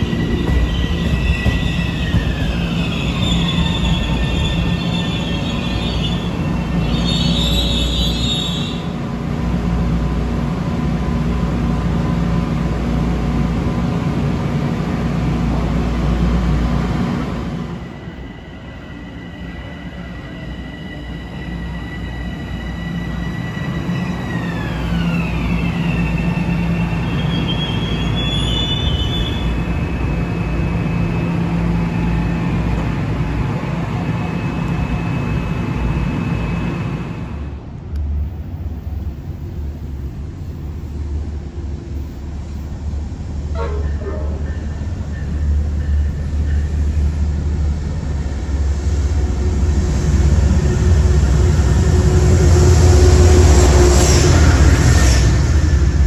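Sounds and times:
wheel squeal: 0.0 - 8.8
train rumbling on rails: 0.0 - 56.0.

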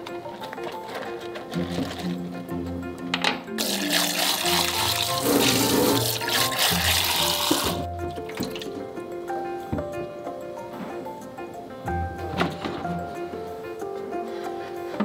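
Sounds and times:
background music: 0.0 - 15.0
tap water running into a sink: 3.6 - 8.7.

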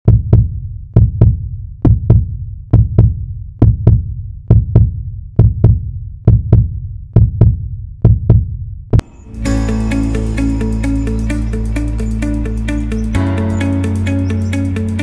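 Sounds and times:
heartbeat thumps: 0.0 - 9.1.

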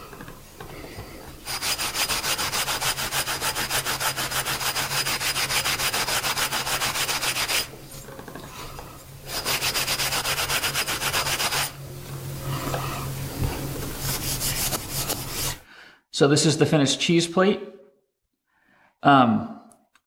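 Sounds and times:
abrasive pad scrubbing metal: 1.4 - 15.6.

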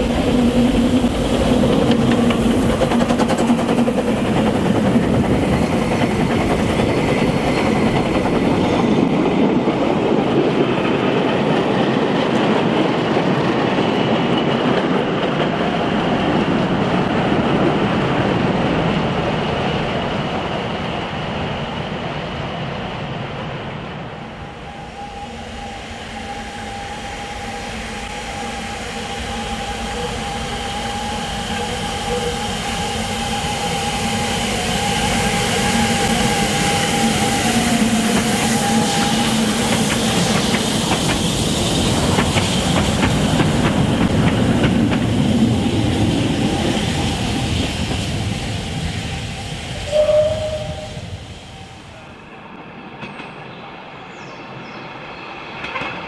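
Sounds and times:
train wheels clicking over rail joints: 0.0 - 15.9, 35.6 - 48.0.

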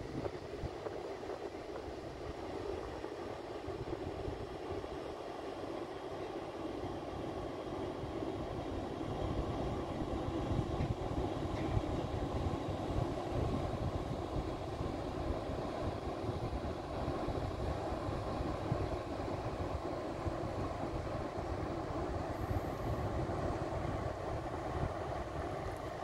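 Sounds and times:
wind buffeting microphone: 0.0 - 5.0.

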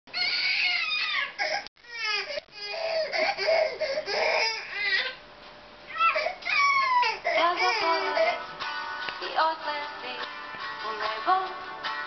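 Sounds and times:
baby crying: 0.1 - 5.2, 5.9 - 8.5.

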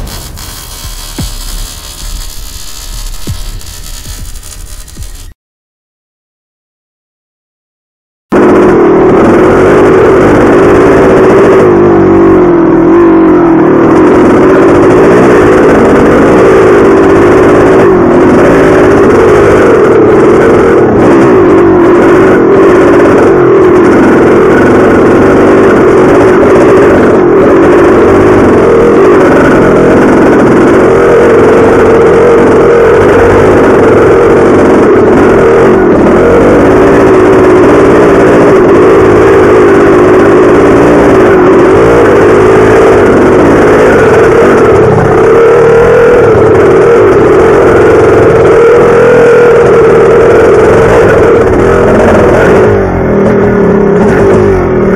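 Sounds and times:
dirt bike engine revving: 0.0 - 5.4, 13.9 - 54.9.

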